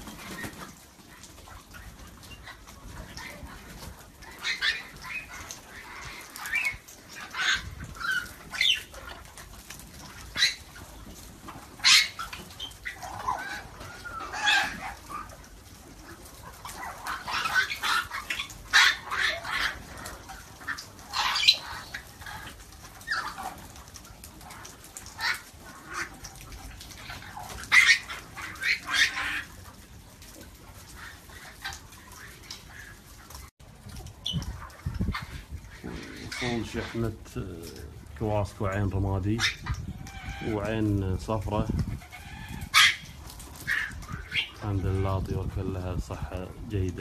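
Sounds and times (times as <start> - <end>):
parrots whistling and squawking: 11.8 - 15.5, 16.4 - 23.6, 42.0 - 44.6.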